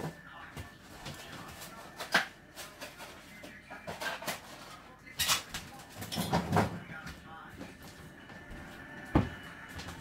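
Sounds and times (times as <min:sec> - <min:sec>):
kitchen items knocking and clicking: 0:00.0 - 0:06.9
kitchen items clattering: 0:00.0 - 0:07.1.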